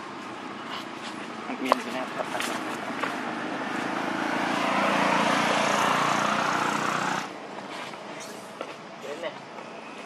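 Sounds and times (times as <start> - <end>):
engine running: 0.0 - 7.5.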